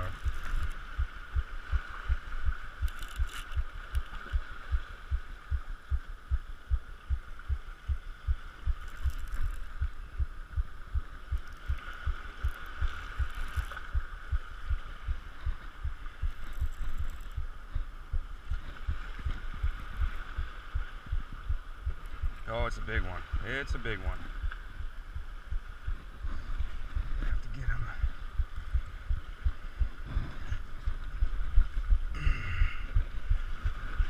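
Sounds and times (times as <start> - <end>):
fishing reel thumps: 2.4 - 4.1, 8.7 - 9.7.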